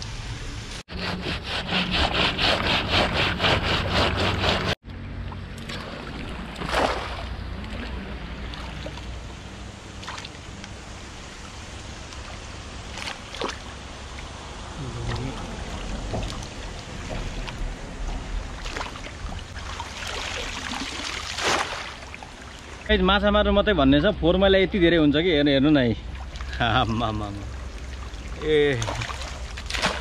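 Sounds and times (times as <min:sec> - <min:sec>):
fast scraping strokes: 0:00.9 - 0:04.8.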